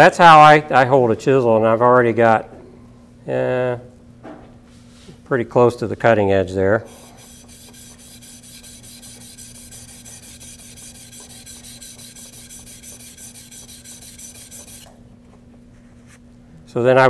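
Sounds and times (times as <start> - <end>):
chisel scraping on sharpening stone: 6.9 - 14.9.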